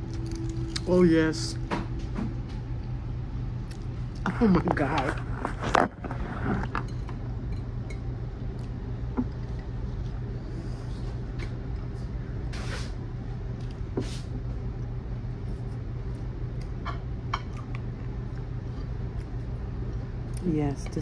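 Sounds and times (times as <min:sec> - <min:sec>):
person eating: 0:00.0 - 0:01.0, 0:03.6 - 0:07.4
low background hum: 0:00.0 - 0:21.0.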